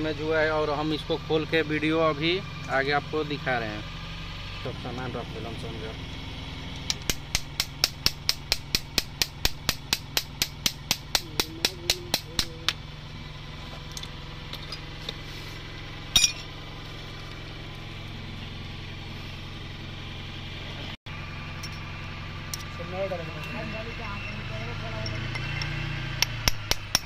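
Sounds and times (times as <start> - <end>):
metallic clatter: 16.1 - 16.6.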